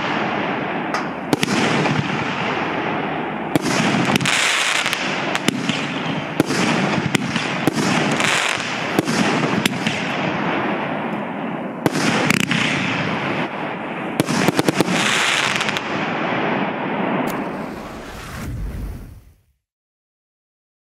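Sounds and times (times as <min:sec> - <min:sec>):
fireworks bangs: 0:00.0 - 0:19.4
dense rushing noise: 0:17.2 - 0:19.4.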